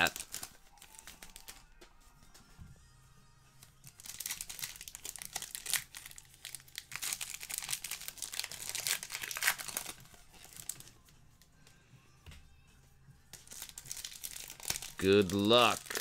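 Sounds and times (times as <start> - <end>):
foil wrapper crinkling and tearing: 0.0 - 1.6, 3.9 - 10.9, 13.3 - 16.0.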